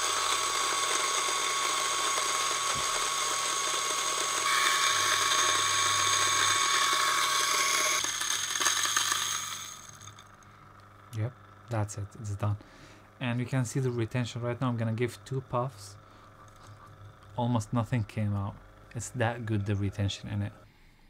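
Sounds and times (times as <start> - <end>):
coffee grinder grinding beans: 0.0 - 10.9.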